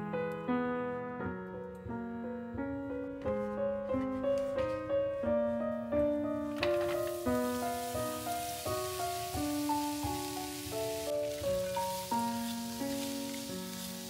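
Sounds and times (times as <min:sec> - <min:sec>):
soft piano music: 0:00.0 - 0:14.0
food sizzling in oil: 0:06.6 - 0:14.0.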